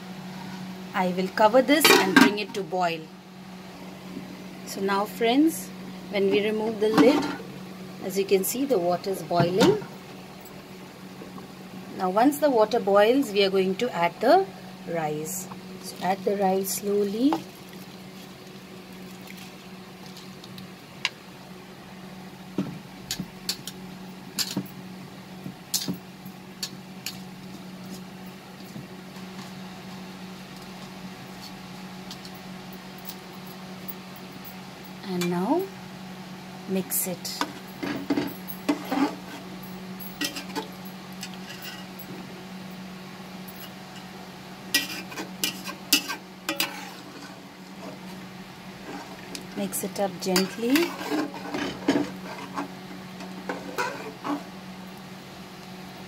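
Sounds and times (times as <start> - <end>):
steady low hum: 0.0 - 56.0
bubbles popping in boiling water: 17.4 - 20.6
metal spatula scraping a pot: 44.8 - 47.4, 50.4 - 52.7, 53.5 - 54.5.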